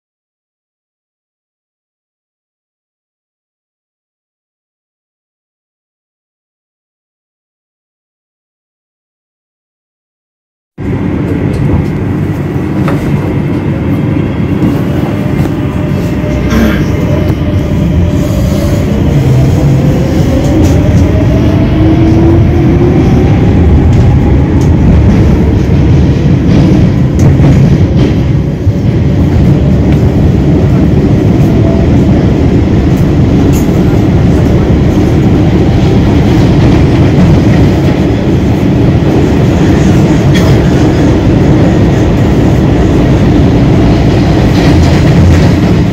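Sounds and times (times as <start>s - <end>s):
train wheels rumbling on rail: 10.8s - 45.9s.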